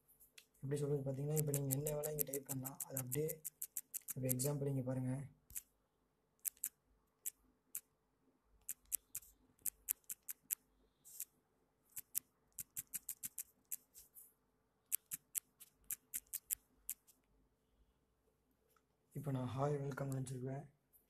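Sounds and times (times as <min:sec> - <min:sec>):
smartphone keyboard typing clicks: 0:01.2 - 0:04.6, 0:06.4 - 0:07.4, 0:08.6 - 0:10.6, 0:12.0 - 0:13.8, 0:14.9 - 0:17.0.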